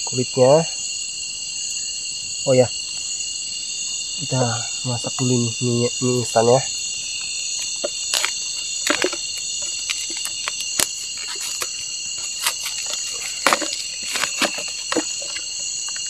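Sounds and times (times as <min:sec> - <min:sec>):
night insects trilling: 0:00.0 - 0:16.0
close clicks and rustles: 0:07.6 - 0:16.0.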